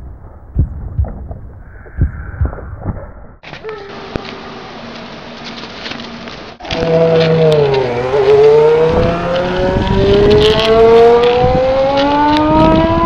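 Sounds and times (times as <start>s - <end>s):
engine revving: 6.6s - 13.0s.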